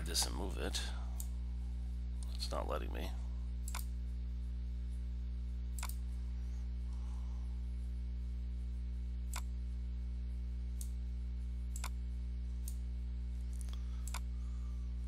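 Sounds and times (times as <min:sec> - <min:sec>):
low electrical hum: 0:00.0 - 0:15.0
computer mouse clicking: 0:03.6 - 0:03.9, 0:05.7 - 0:06.0, 0:09.3 - 0:09.5, 0:11.7 - 0:12.0, 0:13.6 - 0:14.3.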